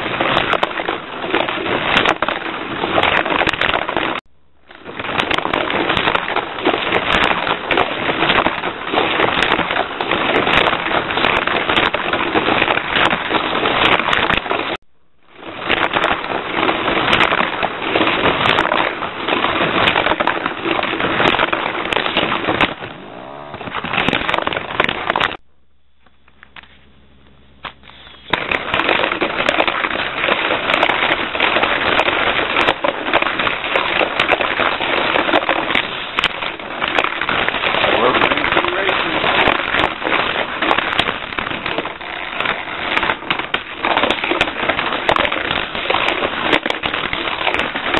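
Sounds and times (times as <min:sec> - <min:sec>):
toy race car motor rattling: 0:37.8 - 0:44.7.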